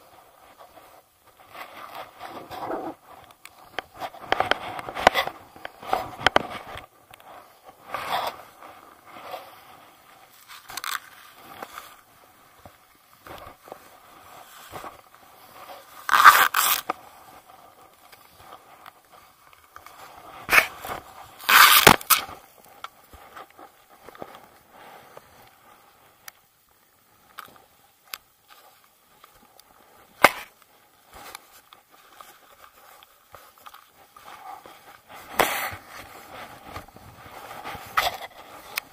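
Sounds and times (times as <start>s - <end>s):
fabric rubbing against camera: 0.4s - 3.2s.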